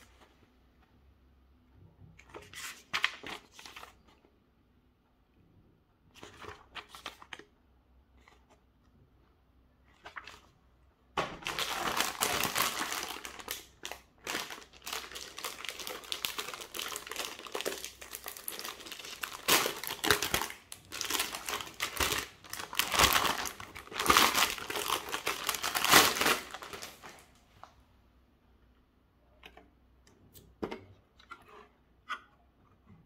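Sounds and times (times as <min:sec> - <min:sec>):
plastic bag crinkling: 0:11.4 - 0:27.4.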